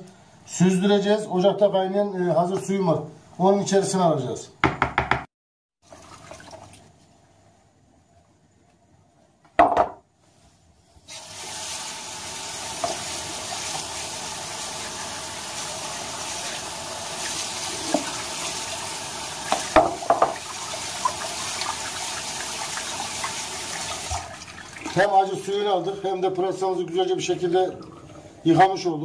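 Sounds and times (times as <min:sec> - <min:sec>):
water pouring through colander: 0:05.8 - 0:07.0, 0:11.1 - 0:25.3.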